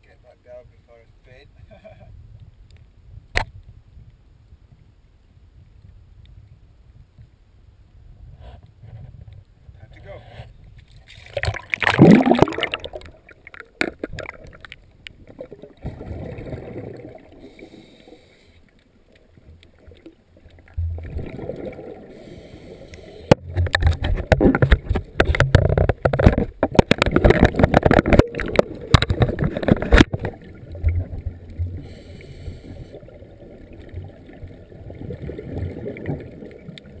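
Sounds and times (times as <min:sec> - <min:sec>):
underwater regulator bubbles: 0:11.1 - 0:18.0, 0:19.6 - 0:37.0
gurgling water rush: 0:11.1 - 0:18.5, 0:19.4 - 0:37.0.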